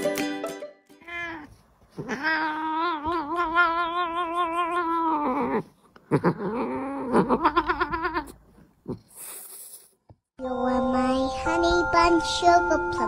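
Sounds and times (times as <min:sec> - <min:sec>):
cat yowling: 0:01.0 - 0:05.7, 0:06.4 - 0:08.4.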